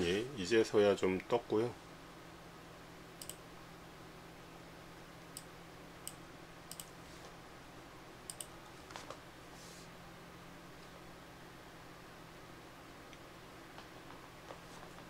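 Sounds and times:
low steady hum: 0.0s - 15.0s
computer mouse clicks: 3.2s - 3.4s, 5.3s - 7.0s, 8.3s - 8.6s.

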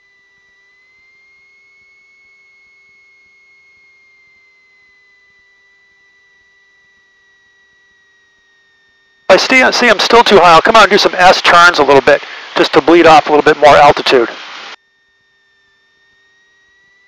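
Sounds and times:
faint electrical whine: 0.0s - 17.0s
weak hum: 2.4s - 14.8s.

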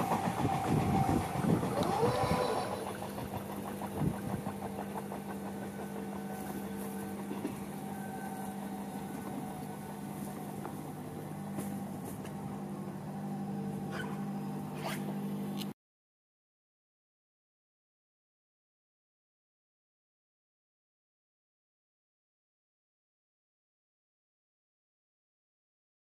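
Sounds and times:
passing train rumble and clatter: 0.0s - 13.9s
low mechanical hum: 0.0s - 15.8s.

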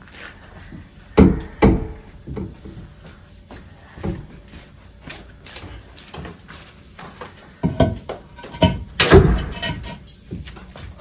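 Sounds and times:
concrete block knocks and scrapes: 7.6s - 10.5s
heavy thud on concrete: 9.0s - 9.6s.

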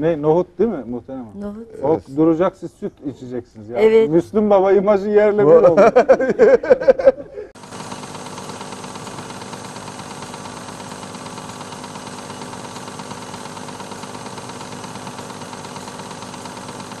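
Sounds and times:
film projector whirring and clattering: 7.6s - 17.0s.

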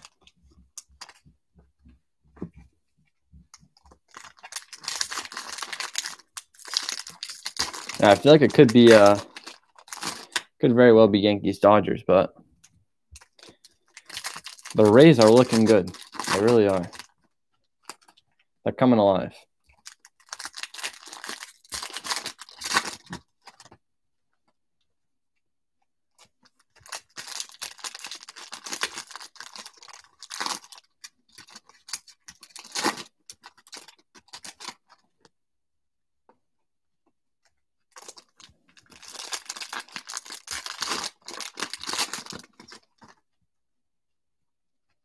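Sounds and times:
foil wrappers tearing and crinkling: 4.1s - 10.5s, 13.2s - 17.1s, 19.8s - 23.6s, 26.7s - 35.0s, 38.0s - 43.1s.

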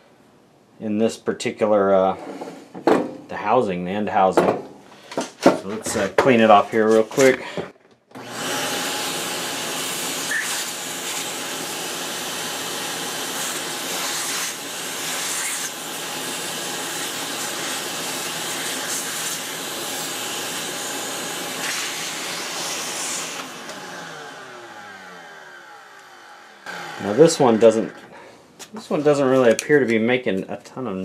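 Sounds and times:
electric blower rushing hiss: 8.2s - 28.7s.

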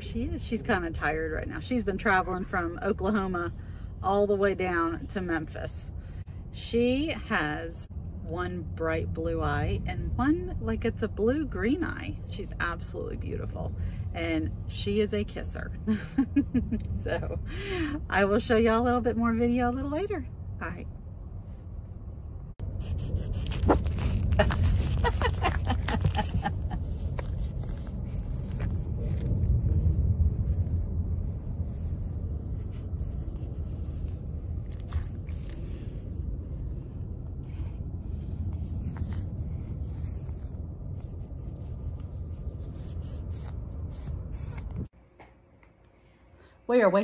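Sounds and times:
scraping and rubbing noises: 22.6s - 37.0s
car cabin rumble: 23.4s - 42.7s.

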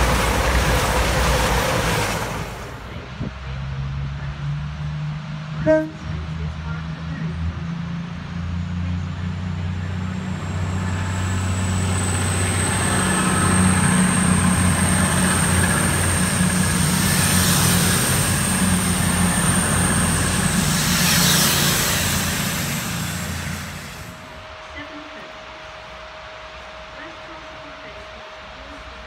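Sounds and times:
train engine drone: 0.0s - 29.0s
wheels rushing on rails: 0.0s - 29.0s
high whine: 10.4s - 28.8s.

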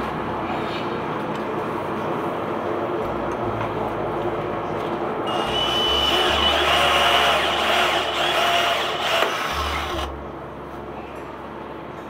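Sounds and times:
cordless drill whirring: 5.3s - 10.1s.

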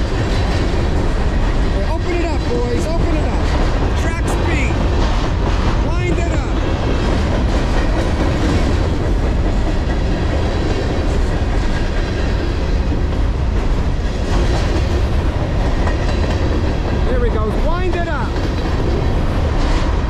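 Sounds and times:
steel train wheels on rails: 0.0s - 20.0s.

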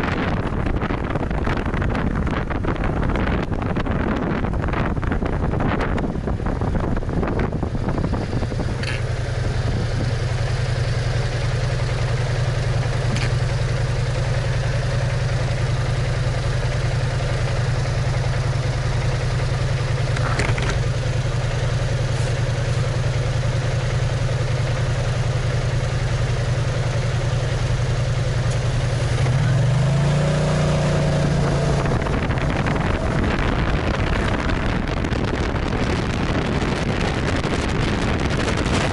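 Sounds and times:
wind buffeting microphone: 0.0s - 11.3s, 28.6s - 38.9s
scooter engine idling and revving: 0.0s - 38.9s.

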